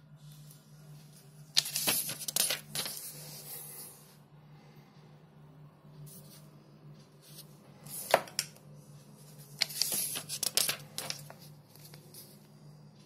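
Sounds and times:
booklet pages turning: 0:01.5 - 0:03.4, 0:07.3 - 0:08.5, 0:09.2 - 0:12.5
sharp paper snap: 0:09.6 - 0:11.3.

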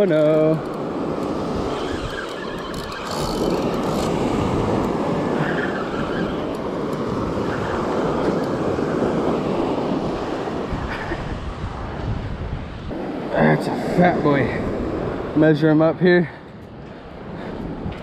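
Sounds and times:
wind on microphone: 0:00.0 - 0:15.4, 0:16.5 - 0:18.0
waves breaking on beach: 0:00.0 - 0:18.0.

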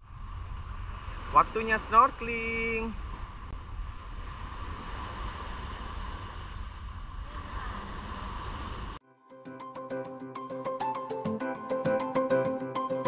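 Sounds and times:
wind rumbling on microphone: 0:00.0 - 0:09.0
music with sharp regular notes: 0:09.3 - 0:13.0.

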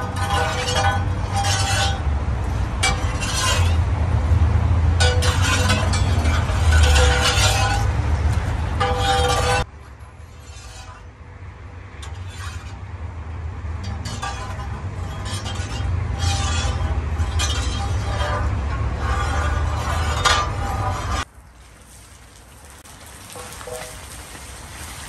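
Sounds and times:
metal ladle scraping a pot: 0:00.0 - 0:03.9, 0:05.0 - 0:11.2, 0:12.0 - 0:12.9, 0:13.9 - 0:21.3, 0:23.4 - 0:24.0.

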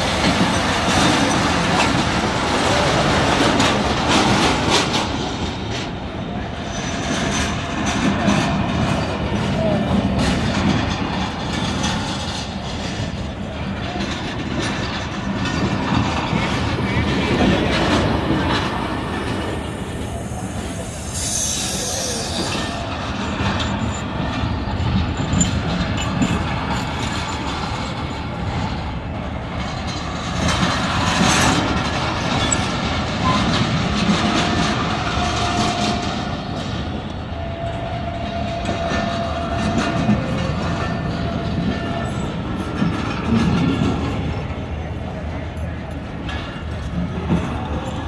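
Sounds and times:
train wheels rumbling on rail: 0:00.0 - 0:48.0
train hiss: 0:18.0 - 0:22.8
faint thin squeal: 0:20.2 - 0:22.8.

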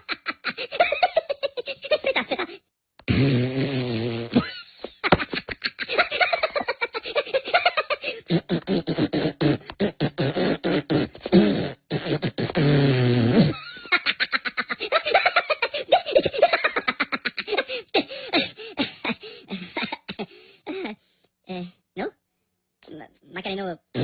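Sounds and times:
cartoon characters laughing: 0:00.0 - 0:02.6, 0:04.4 - 0:08.4, 0:13.5 - 0:17.9.

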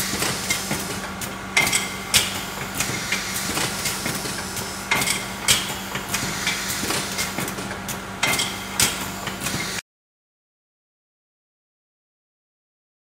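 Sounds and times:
machine clacks: 0:00.0 - 0:09.8.

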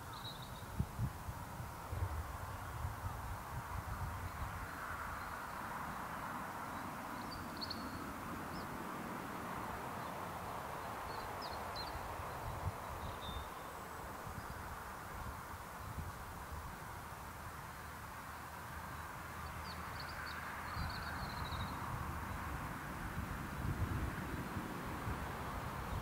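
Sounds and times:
small birds chirping: 0:00.0 - 0:00.8, 0:04.0 - 0:08.8, 0:09.8 - 0:14.8, 0:17.7 - 0:22.5.

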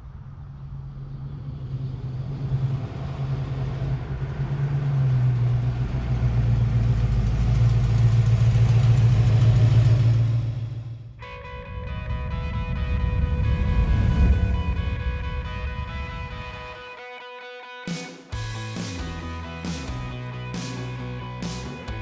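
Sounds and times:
car engine driving up: 0:00.0 - 0:16.8, 0:18.4 - 0:22.0
music: 0:11.2 - 0:22.0.

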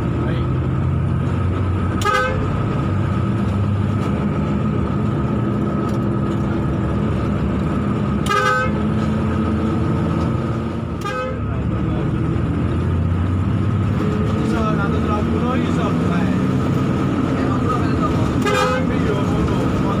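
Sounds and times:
bus engine running hard: 0:00.0 - 0:20.0
vehicle horn blasts: 0:02.0 - 0:02.5, 0:08.2 - 0:08.8, 0:11.0 - 0:11.5, 0:18.4 - 0:19.0.

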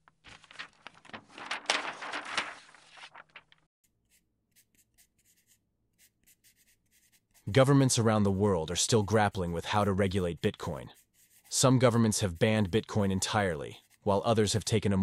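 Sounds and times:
paper page turning: 0:00.0 - 0:03.7
pencil writing on paper: 0:03.9 - 0:14.7.

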